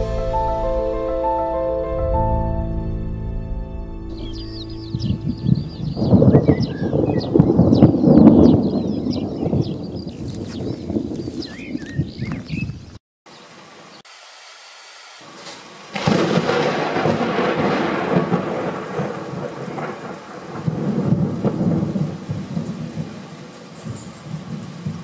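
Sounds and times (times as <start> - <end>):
thunder rumbling: 4.1 - 13.0, 15.9 - 25.0
steady rain: 13.3 - 14.1, 15.2 - 25.0.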